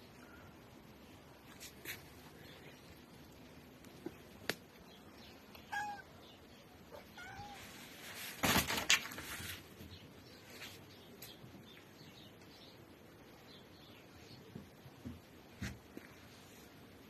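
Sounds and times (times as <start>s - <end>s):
cat meowing: 5.7s - 6.2s, 6.9s - 7.7s.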